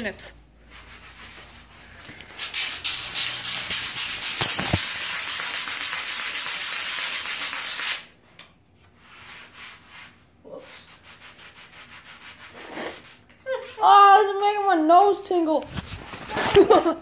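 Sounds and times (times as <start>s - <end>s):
scrubbing on concrete: 0.7s - 8.0s
aerosol can spraying hiss: 2.4s - 5.6s.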